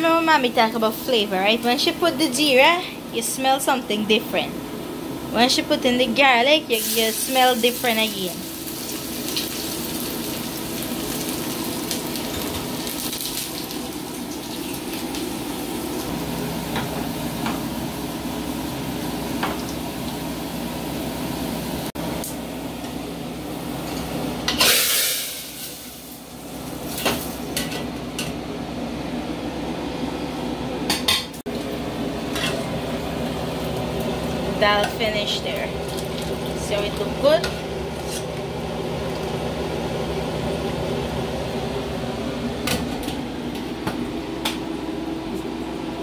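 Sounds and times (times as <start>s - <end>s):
spices sizzling in hot oil: 6.7s - 21.9s, 23.7s - 27.6s, 32.2s - 40.8s.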